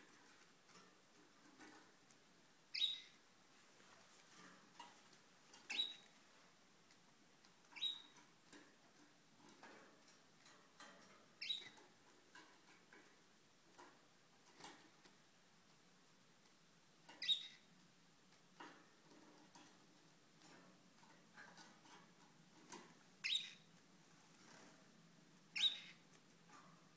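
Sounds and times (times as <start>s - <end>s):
canaries chirping: 0.0s - 3.3s, 4.2s - 6.2s, 7.4s - 8.6s, 9.3s - 13.0s, 17.0s - 26.9s
clicks and rustles in a cage: 0.0s - 26.9s.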